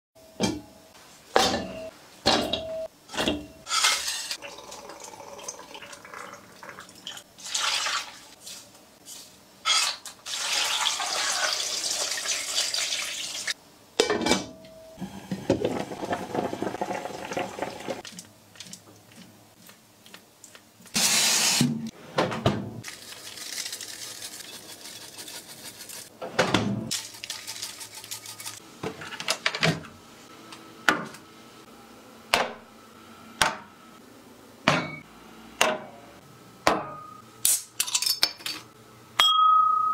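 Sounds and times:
liquid running or pouring: 4.4 - 8.3, 10.2 - 13.6, 15.4 - 18.8.

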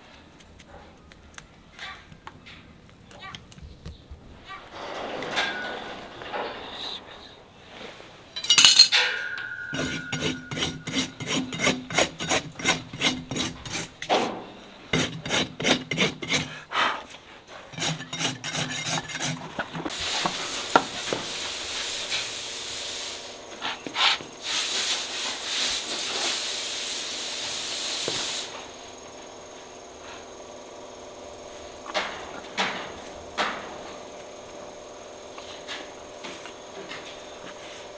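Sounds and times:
sharp metallic clank: 8.4 - 11.9
hoof rasp filing: 9.6 - 16.9, 17.5 - 22.3.

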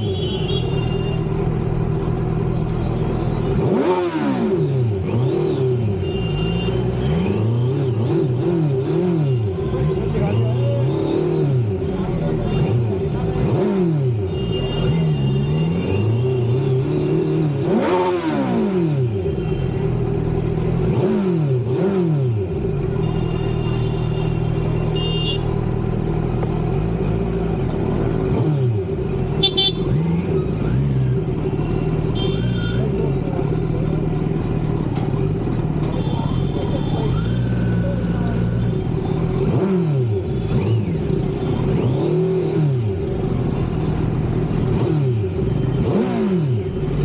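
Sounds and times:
vehicle horns honking: 0.0 - 1.4, 6.0 - 8.2, 14.2 - 16.9, 23.0 - 25.6, 29.4 - 30.0, 31.6 - 33.0, 35.9 - 37.6
motorcycle engine revving: 0.0 - 47.0.

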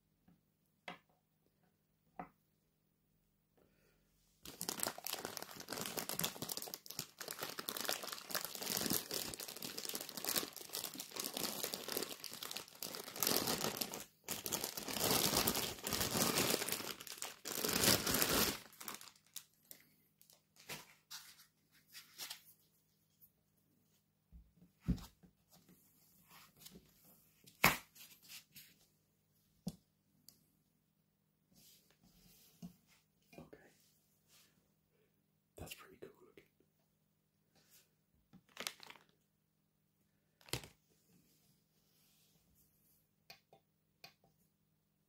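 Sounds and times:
plastic bag crinkling: 4.5 - 20.4, 38.4 - 39.2, 40.4 - 40.7.

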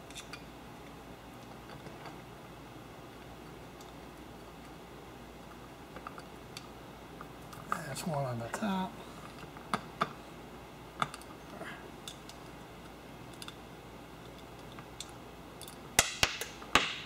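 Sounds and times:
metallic clicks of small nuts: 12.0 - 13.6, 14.2 - 16.6.

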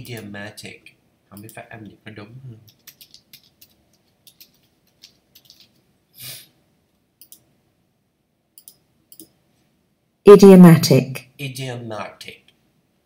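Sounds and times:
keyboard typing: 2.6 - 5.8, 7.2 - 7.5, 8.6 - 9.3.

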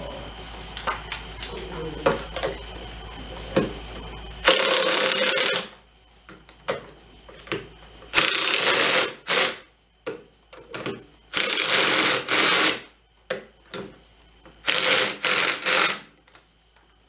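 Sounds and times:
impact driver bursts: 8.1 - 9.7, 11.4 - 12.9, 14.6 - 16.1.

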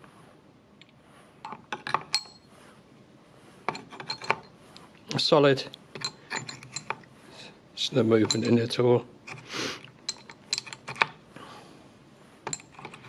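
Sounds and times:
weight discs clicking and scraping: 1.4 - 2.4, 3.6 - 5.2, 5.9 - 7.1, 8.0 - 11.2, 12.4 - 13.0.

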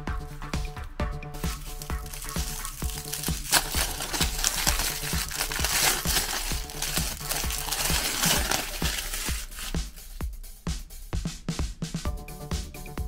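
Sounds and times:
electronic music with steady beat: 0.0 - 13.0
aluminium foil crinkling: 1.5 - 9.8.

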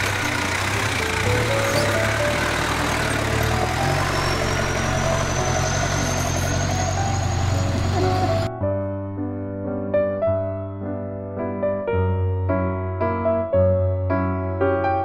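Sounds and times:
truck engine running at low revs: 0.0 - 8.5
piano music: 0.0 - 15.0.

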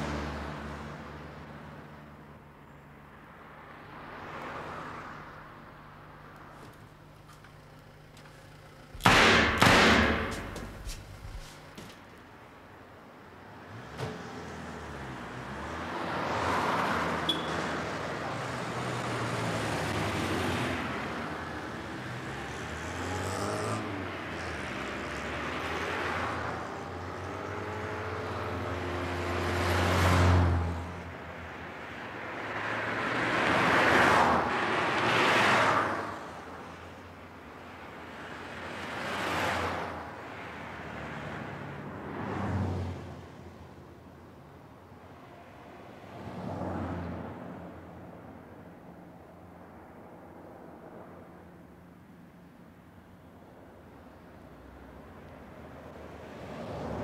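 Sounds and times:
vehicle engine hum: 0.0 - 33.7
cars passing by: 0.0 - 57.0.

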